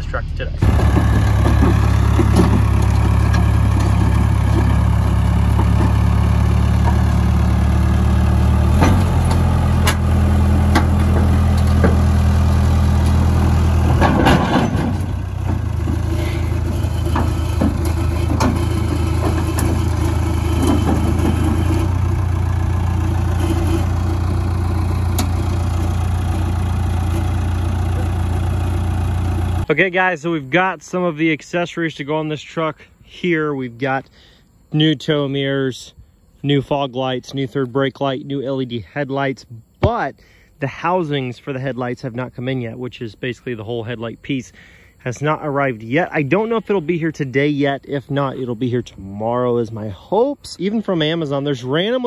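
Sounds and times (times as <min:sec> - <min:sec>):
diesel engine running: 0:00.0 - 0:30.5.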